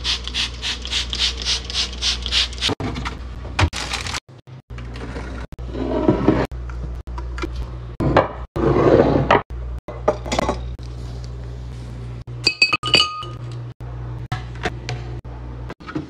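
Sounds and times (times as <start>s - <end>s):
items clinking against glass: 12.5s - 13.5s.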